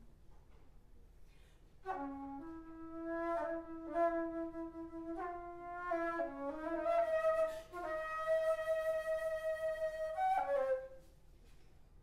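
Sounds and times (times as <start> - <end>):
alto flute melody: 1.8 - 11.1.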